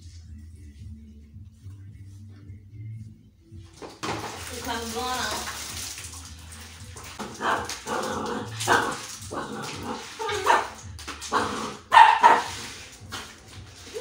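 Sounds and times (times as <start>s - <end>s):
dog barking: 10.2s - 12.8s.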